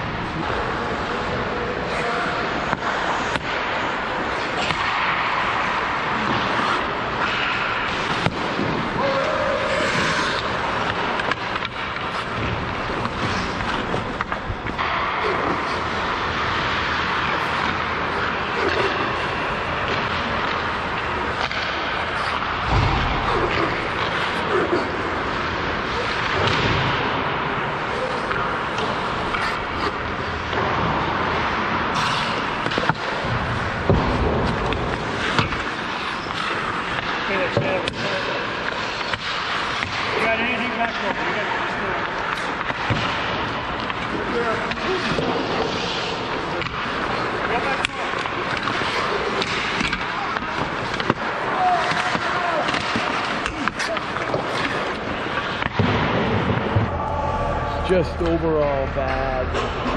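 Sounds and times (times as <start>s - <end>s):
hockey stick clacks: 2.3s - 27.4s, 28.0s - 57.0s
skate blades scraping ice: 5.6s - 22.7s, 27.6s - 56.8s.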